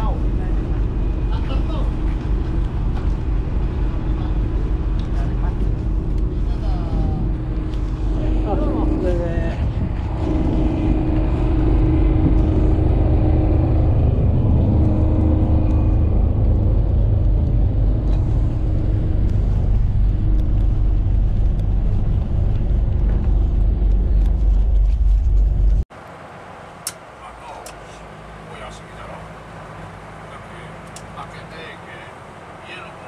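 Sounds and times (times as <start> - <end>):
faint hum: 0.0 - 25.8
diesel engine low rumble: 0.0 - 33.0.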